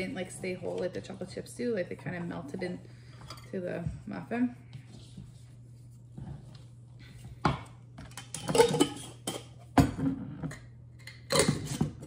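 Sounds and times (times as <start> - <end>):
dishes and utensils clattering: 3.1 - 3.6, 7.4 - 12.0.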